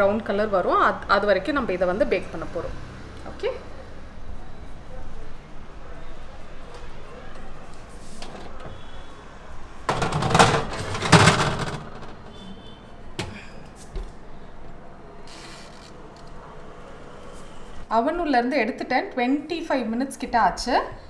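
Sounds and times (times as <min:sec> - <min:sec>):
metal tray scraping on wire rack: 0:09.9 - 0:12.7.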